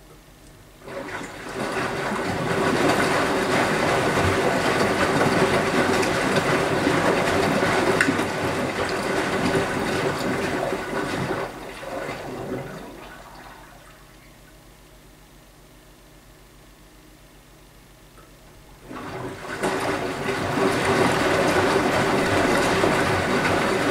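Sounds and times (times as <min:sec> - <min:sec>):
steady hum: 0:00.0 - 0:23.9
washing machine drum turning: 0:00.8 - 0:13.1, 0:18.8 - 0:23.9
water sloshing: 0:00.8 - 0:14.6, 0:18.7 - 0:23.9.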